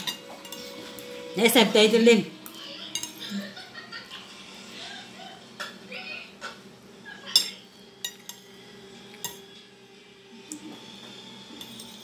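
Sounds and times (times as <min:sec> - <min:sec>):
cutlery clinking on plate: 0:00.0 - 0:01.0, 0:02.9 - 0:03.3, 0:07.3 - 0:08.5, 0:09.1 - 0:09.5, 0:11.6 - 0:12.0.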